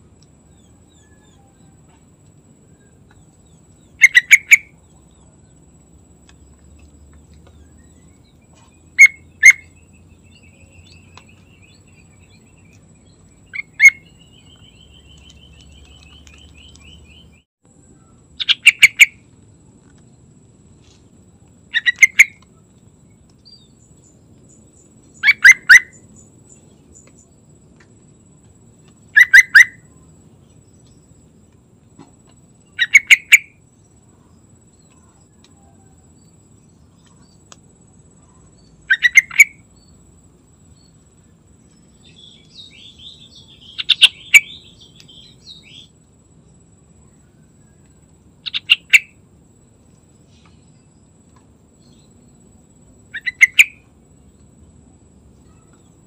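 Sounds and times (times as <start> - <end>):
faint rapid bird trill: 0.0 - 19.3, 20.8 - 56.0
bird singing short phrases: 7.6 - 17.4, 42.0 - 45.9.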